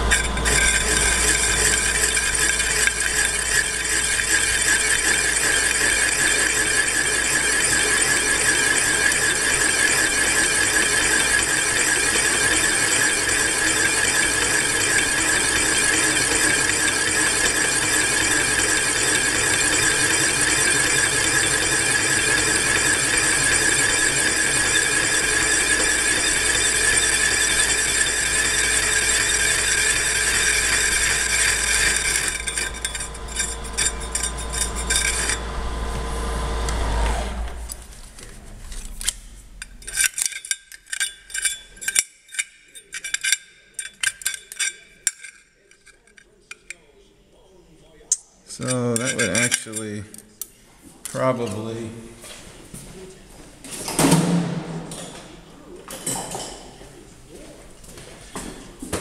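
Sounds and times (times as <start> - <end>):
boring head squealing in steel: 0.0 - 35.8
milling spindle winding down: 0.0 - 38.0.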